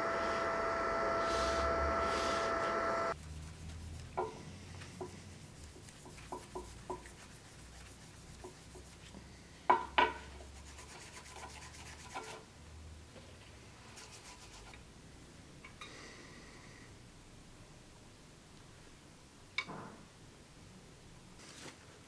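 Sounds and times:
cloth rubbing on wood: 0:00.2 - 0:04.2, 0:04.8 - 0:09.1.

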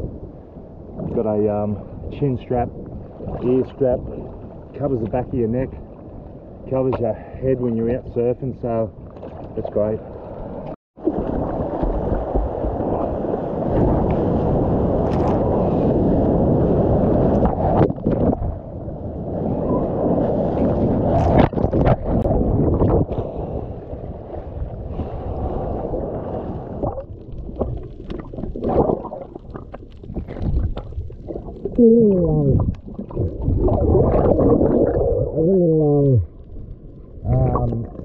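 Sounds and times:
muffled breaking wave wash: 0:00.0 - 0:38.0
underwater dull wash: 0:00.0 - 0:38.0
sharp water splashes: 0:26.8 - 0:31.8.

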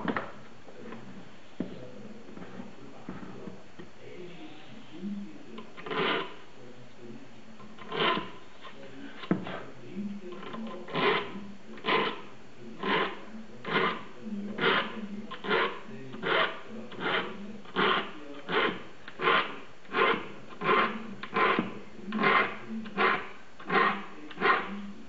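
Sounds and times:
file rasping on saw teeth: 0:05.6 - 0:06.4, 0:07.6 - 0:09.7, 0:10.4 - 0:24.8.

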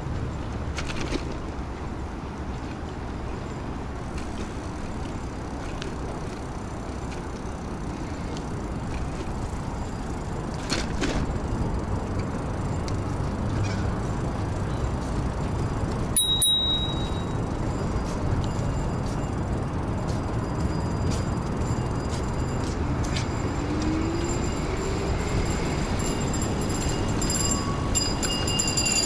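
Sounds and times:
wind and tyre noise: 0:00.0 - 0:29.0
short high ding: 0:16.2 - 0:17.4.

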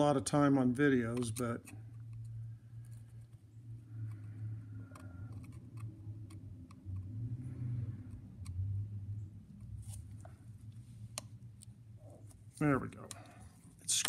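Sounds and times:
steady low hum: 0:00.0 - 0:14.0
screwdriver ticks and clicks: 0:01.0 - 0:02.4, 0:04.9 - 0:07.1.

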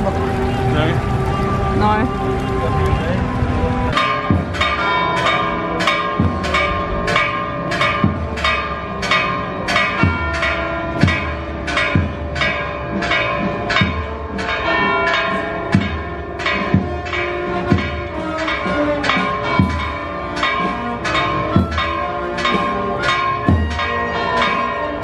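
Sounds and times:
deeper church bell: 0:00.0 - 0:25.0
higher church bell: 0:00.0 - 0:25.0.

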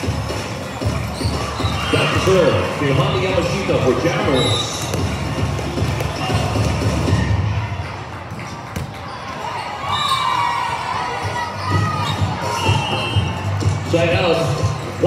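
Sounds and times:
hum of crowded hall: 0:00.0 - 0:15.0
volleyballs struck and bouncing: 0:04.6 - 0:07.2, 0:08.1 - 0:09.4.

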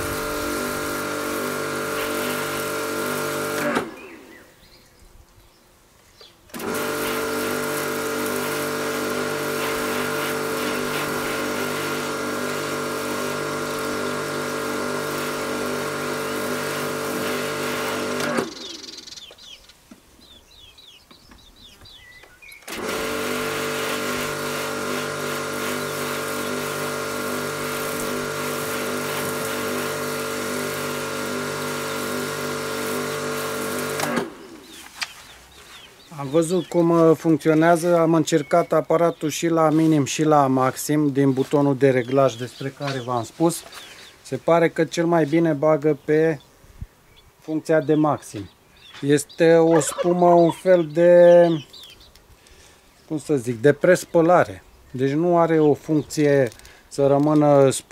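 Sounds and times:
pressure washer motor humming: 0:00.0 - 0:04.4, 0:06.5 - 0:19.1, 0:22.6 - 0:35.0.

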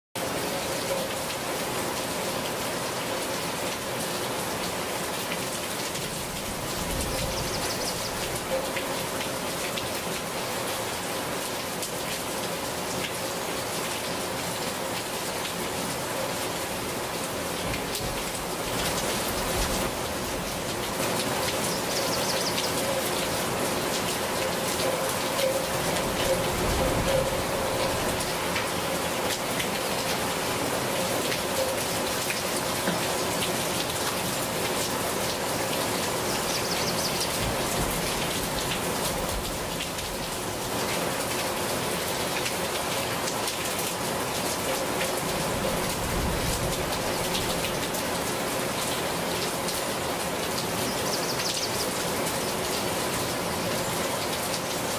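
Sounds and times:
rain falling on leaves: 0:00.2 - 0:54.9.

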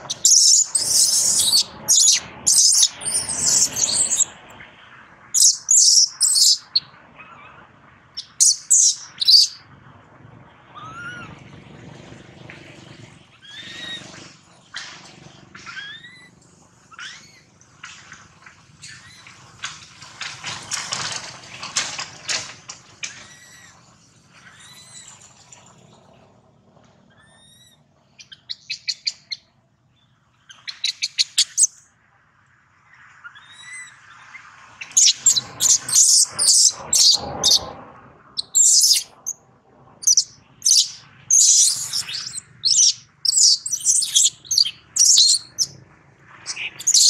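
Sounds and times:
baby monkey squeaking and shrieking: 0:00.0 - 0:04.3, 0:05.4 - 0:07.6, 0:08.2 - 0:09.6, 0:10.8 - 0:11.3, 0:15.7 - 0:16.3, 0:16.9 - 0:17.4, 0:27.1 - 0:29.3, 0:30.5 - 0:31.7, 0:34.8 - 0:37.7, 0:38.4 - 0:39.4, 0:40.0 - 0:45.7, 0:46.5 - 0:47.0.

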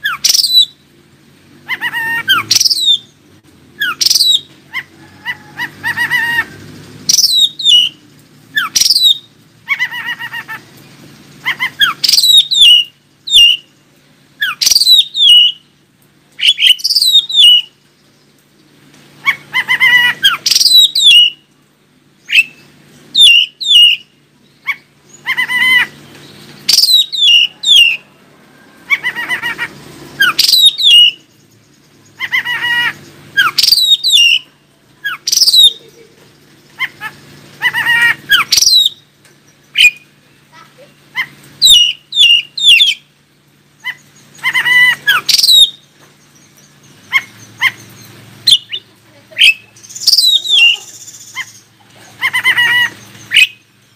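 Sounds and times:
bird singing whistled phrases: 0:00.0 - 0:00.8, 0:01.8 - 0:03.2, 0:03.8 - 0:04.5, 0:07.1 - 0:08.0, 0:08.6 - 0:09.3, 0:11.6 - 0:13.7, 0:14.4 - 0:15.6, 0:16.4 - 0:17.7, 0:19.8 - 0:21.4, 0:22.2 - 0:22.6, 0:23.2 - 0:24.1, 0:26.7 - 0:28.0, 0:30.2 - 0:31.3, 0:32.2 - 0:34.5, 0:35.1 - 0:35.9, 0:38.3 - 0:39.0, 0:41.6 - 0:43.0, 0:44.4 - 0:45.9, 0:48.5 - 0:51.6.

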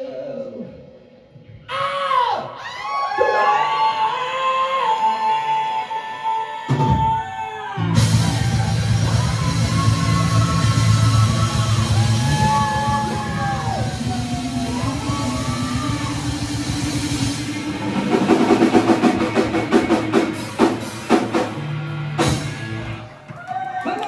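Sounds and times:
drum hits and cymbal crashes: 0:07.9 - 0:23.0.

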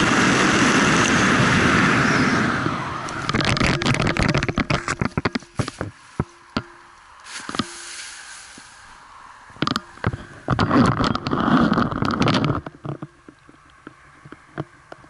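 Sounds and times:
rustling and scraping handling noise: 0:03.1 - 0:15.0.

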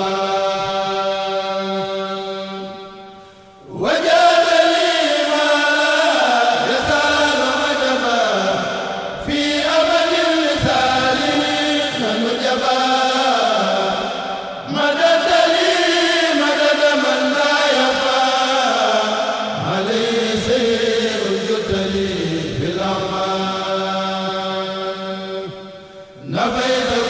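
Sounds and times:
group chanting devotional poem: 0:00.0 - 0:27.0.

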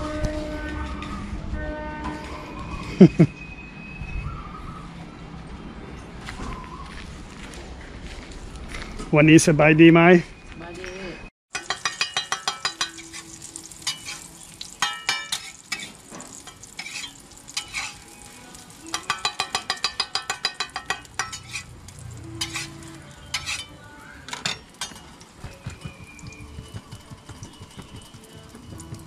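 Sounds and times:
metal spatulas clacking on griddle: 0:11.5 - 0:18.0, 0:18.8 - 0:21.7, 0:22.4 - 0:26.1
food frying: 0:11.5 - 0:23.6.

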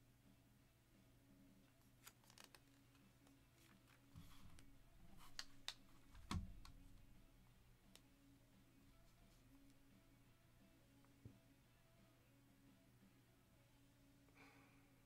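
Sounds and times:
trading cards rustling: 0:02.0 - 0:06.8.

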